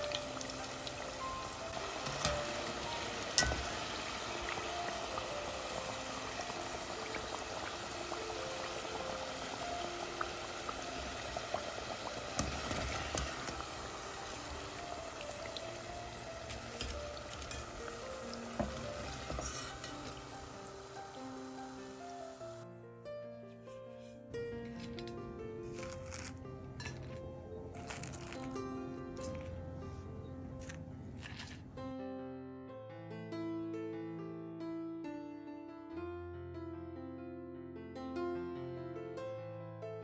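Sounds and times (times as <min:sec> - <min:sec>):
liquid bubbling in a pot: 0:00.0 - 0:21.0
soft background music: 0:00.0 - 0:40.0.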